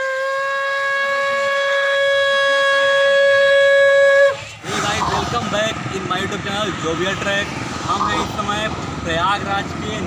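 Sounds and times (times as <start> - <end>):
conch shell blown: 0.0 - 4.5.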